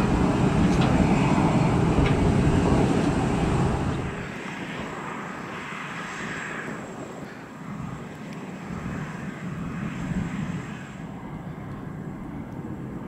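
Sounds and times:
jet engines rumbling: 0:00.0 - 0:13.0.

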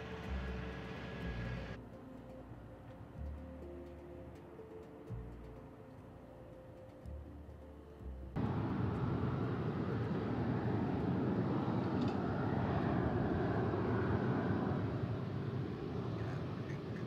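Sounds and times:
faint music: 0:00.0 - 0:17.0
jet engines running loud: 0:08.4 - 0:17.0.

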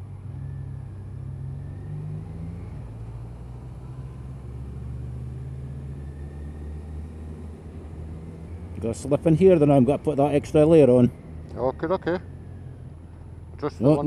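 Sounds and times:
motorcycle engine drone: 0:00.0 - 0:14.0
road noise: 0:00.0 - 0:14.0.

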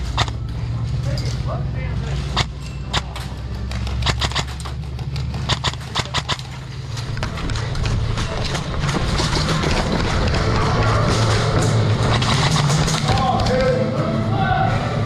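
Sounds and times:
sharp clicks: 0:00.0 - 0:00.4, 0:02.4 - 0:10.7, 0:11.9 - 0:13.7.

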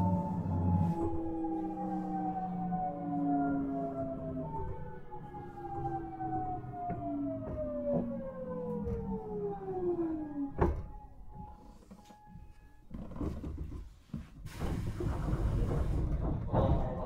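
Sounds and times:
train running gear rumble: 0:00.0 - 0:12.0, 0:13.0 - 0:17.0
train inverter whining: 0:00.0 - 0:12.9, 0:14.6 - 0:17.0.

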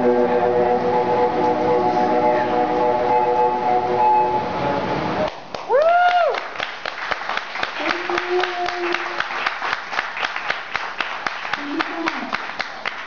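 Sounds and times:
audience clapping: 0:05.2 - 0:13.0
listener whooping: 0:05.7 - 0:06.4
person cheering: 0:05.7 - 0:06.4.

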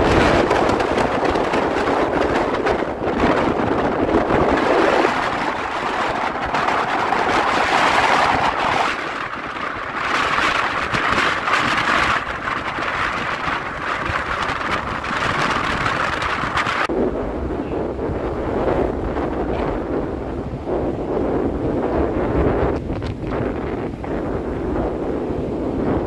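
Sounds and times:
gusty wind buffeting microphone: 0:00.0 - 0:26.0.

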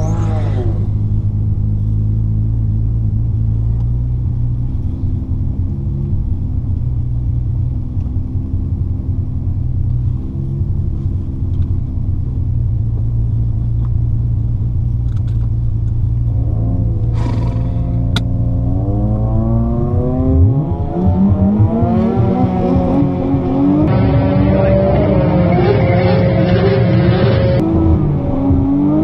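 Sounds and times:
car engine idling: 0:00.0 - 0:19.7.

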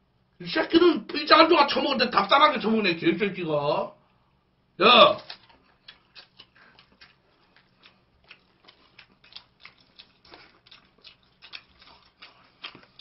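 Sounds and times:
people eating clicks and smacks: 0:05.2 - 0:13.0.

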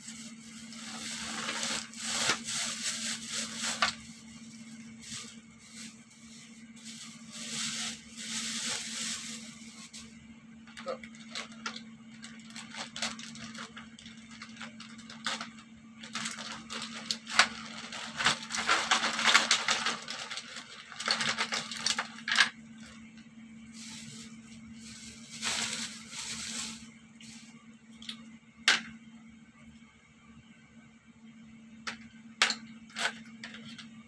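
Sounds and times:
plastic bag crinkling: 0:00.0 - 0:10.1, 0:10.8 - 0:23.0, 0:23.7 - 0:27.5.

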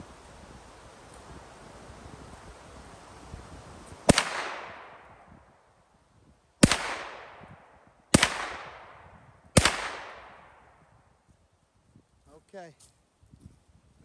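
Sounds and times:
gunshots with echo: 0:04.1 - 0:05.0, 0:06.6 - 0:07.5, 0:08.1 - 0:09.0, 0:09.6 - 0:10.5.

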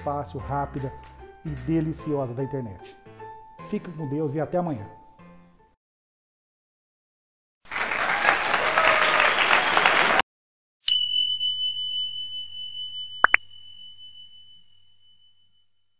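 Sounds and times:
applause: 0:07.6 - 0:10.2
bell-like ding: 0:10.9 - 0:15.8.

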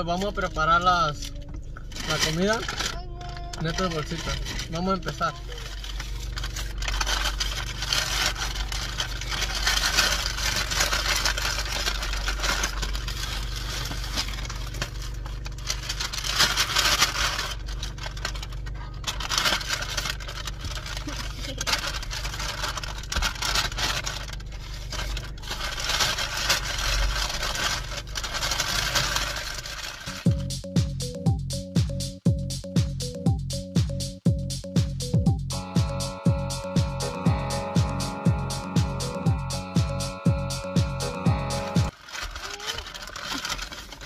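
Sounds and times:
low steady hum: 0:00.0 - 0:31.5, 0:34.2 - 0:44.0
paper bags crinkling: 0:01.4 - 0:30.4, 0:41.8 - 0:44.0.

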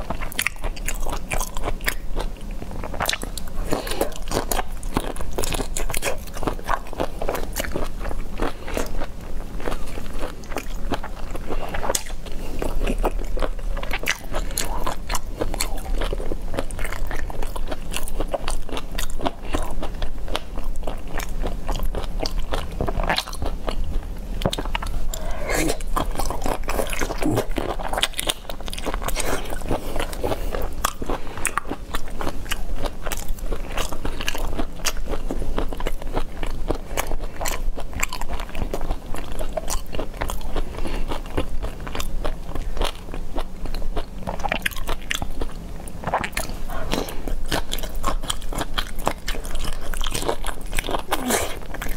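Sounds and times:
person chewing crunchy shrimp: 0:00.0 - 0:51.9.

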